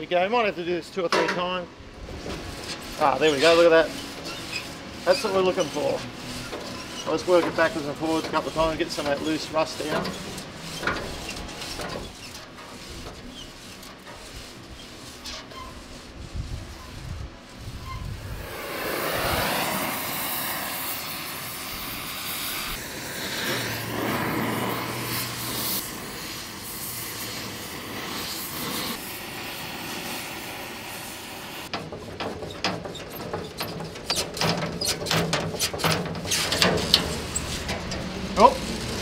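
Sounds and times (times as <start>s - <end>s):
gas torch hissing: 17.5s - 31.7s
metallic clanks and knocks: 31.7s - 38.3s.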